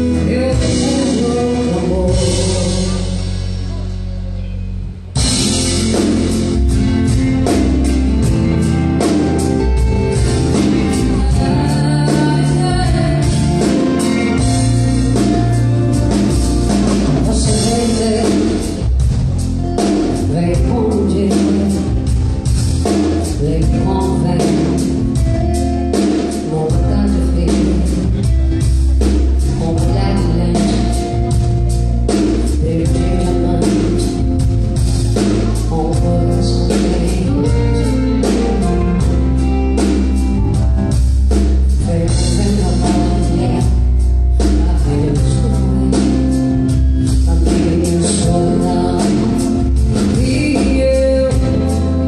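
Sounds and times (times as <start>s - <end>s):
woman singing: 0.0s - 3.8s, 9.2s - 19.0s, 20.0s - 22.2s, 22.9s - 28.6s, 29.3s - 31.4s, 32.4s - 34.5s, 35.1s - 39.5s, 41.7s - 52.0s
drum kit beat: 0.0s - 52.0s
electric guitars: 0.0s - 52.0s
keyboards: 0.0s - 52.0s.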